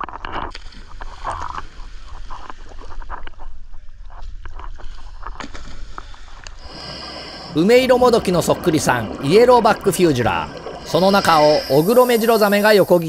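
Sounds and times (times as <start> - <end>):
sea water lapping and splashing: 0.5 - 13.0
steady low rumble: 6.6 - 13.0.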